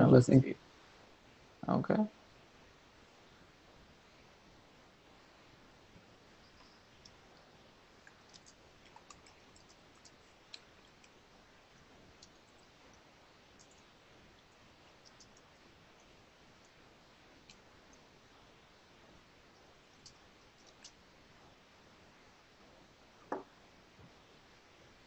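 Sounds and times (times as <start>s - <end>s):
faint steady hiss: 0.0s - 25.0s
small clicks: 8.0s - 11.2s, 20.0s - 21.0s.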